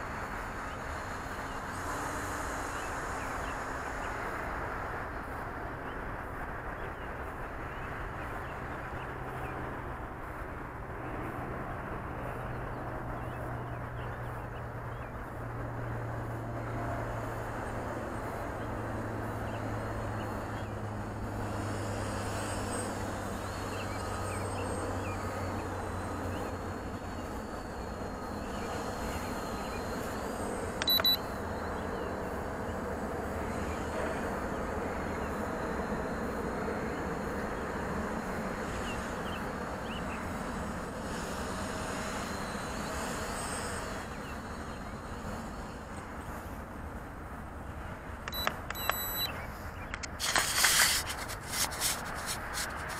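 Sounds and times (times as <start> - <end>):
outdoor background noise: 0.0 - 52.9
sharp click: 48.3 - 49.3.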